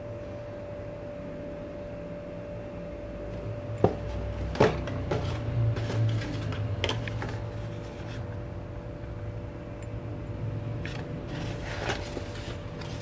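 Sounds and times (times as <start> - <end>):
steady background hum: 0.0 - 13.0
cardboard box knocks and scrapes: 3.8 - 6.6.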